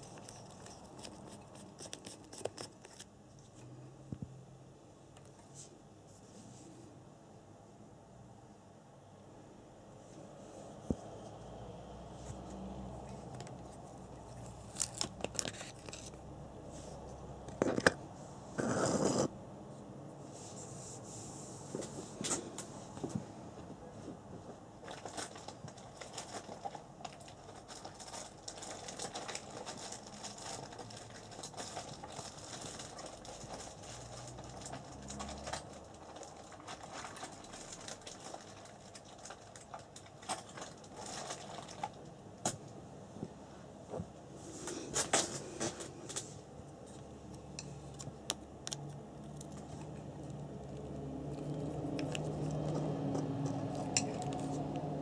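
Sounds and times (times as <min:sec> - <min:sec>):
rubbing and scraping of plastic parts: 0:00.0 - 0:03.6, 0:13.0 - 0:19.3, 0:24.8 - 0:42.0, 0:44.4 - 0:55.0.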